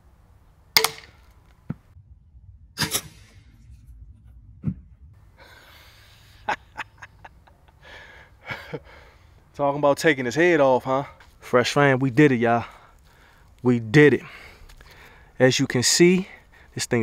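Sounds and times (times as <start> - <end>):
crossbow bolt striking coconut: 0.8 - 1.4
breathy laughter: 5.4 - 9.2.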